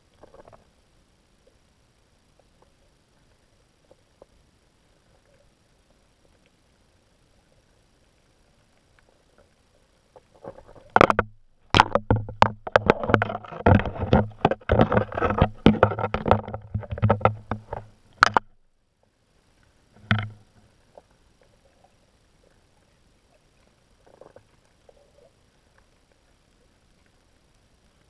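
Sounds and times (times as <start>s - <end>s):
crab clicking and knocking underwater: 0.0s - 0.8s, 8.8s - 18.7s, 19.9s - 22.0s, 23.4s - 26.3s.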